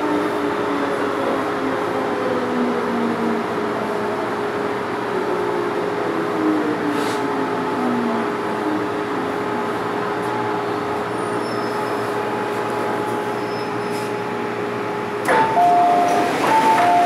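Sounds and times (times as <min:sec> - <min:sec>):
rail running noise: 0:00.0 - 0:17.0
high brake squeal: 0:11.1 - 0:12.4, 0:13.1 - 0:14.2
sharp sound of train stopping: 0:15.2 - 0:17.0.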